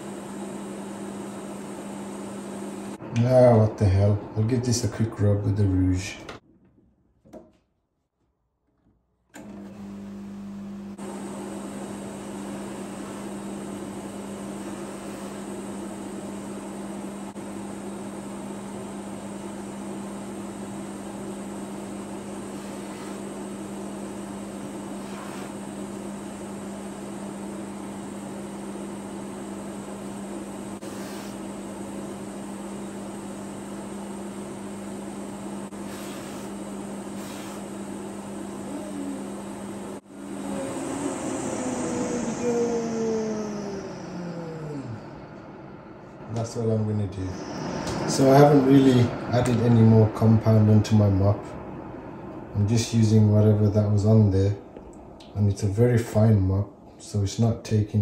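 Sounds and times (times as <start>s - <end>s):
polishing motor humming: 35.6s - 54.0s.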